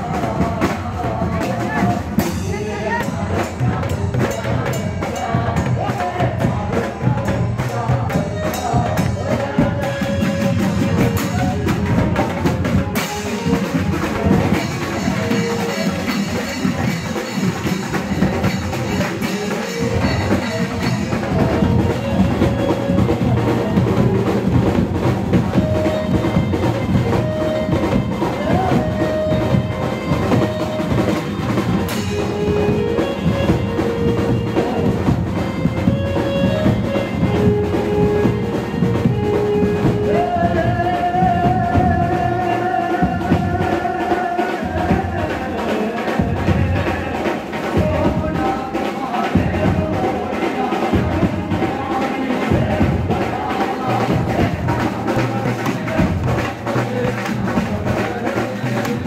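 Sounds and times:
drums playing dance beat: 0.0 - 59.0
man singing into microphone: 0.0 - 59.0
keyboard melody: 19.1 - 41.6.

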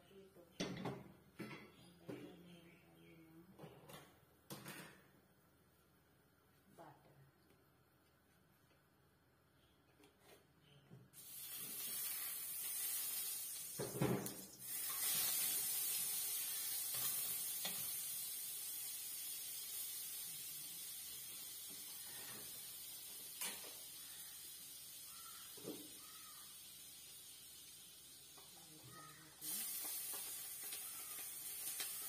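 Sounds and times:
margarine sizzling in a wok: 11.2 - 32.0.

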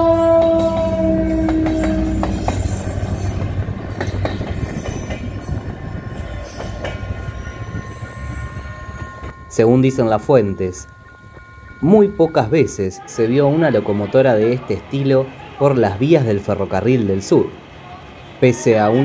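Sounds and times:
locomotive horn chord: 0.0 - 3.4
train rumbling past: 0.0 - 19.0
wheels clicking over rails: 0.4 - 12.1.

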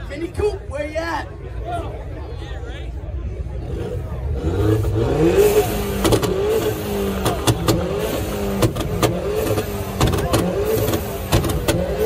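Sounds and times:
car engine revving: 3.5 - 12.0.

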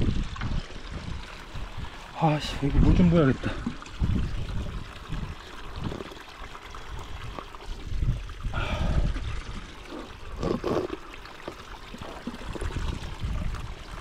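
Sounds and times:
water splashing: 0.0 - 14.0
water trickling from spout: 0.0 - 14.0.

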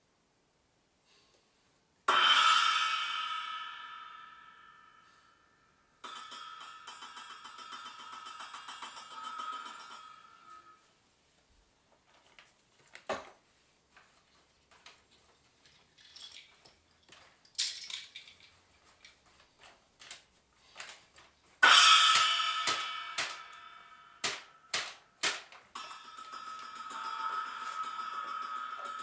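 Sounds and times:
ringing metal strike: 2.1 - 10.9, 21.6 - 24.8, 25.7 - 29.0
small clicks and rustles: 11.9 - 21.6
shaken rattle: 15.2 - 19.7.

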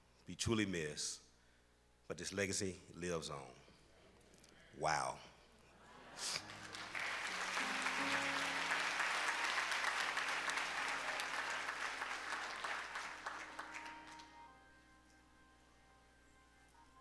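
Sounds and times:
congregation applauding: 6.2 - 14.5
held musical notes: 6.4 - 17.0.

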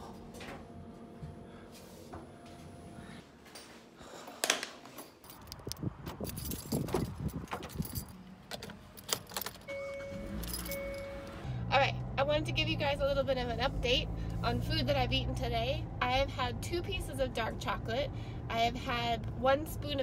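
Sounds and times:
keys jangling: 5.1 - 11.2.

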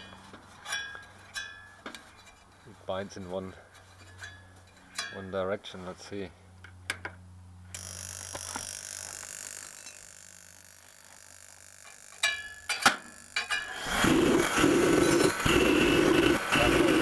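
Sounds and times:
heater fan motor droning: 0.0 - 17.0.

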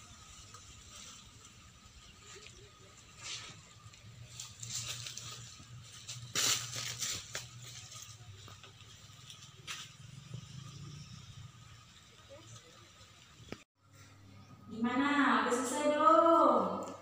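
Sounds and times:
rustling and crunching: 0.0 - 10.7.

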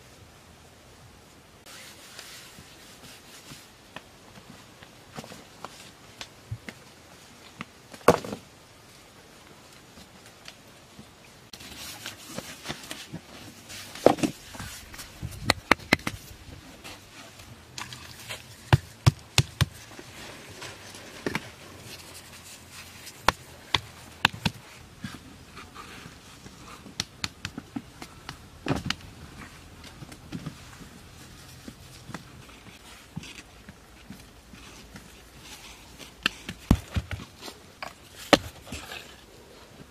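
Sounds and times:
stones clacking on stones: 14.0 - 16.4.

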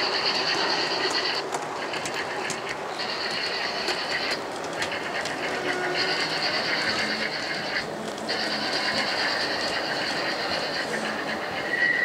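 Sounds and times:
constant background noise: 0.0 - 12.0
model train high whine: 0.0 - 12.0.

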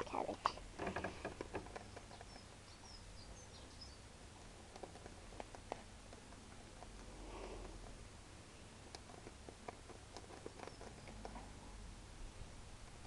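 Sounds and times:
rabbits nibbling leaves: 0.0 - 11.8
high bird chirps: 2.1 - 4.0.

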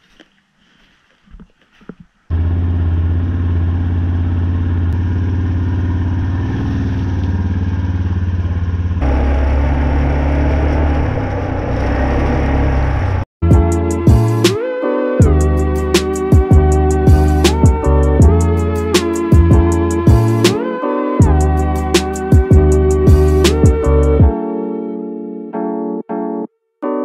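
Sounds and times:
four-wheeler engine running: 2.3 - 13.3.

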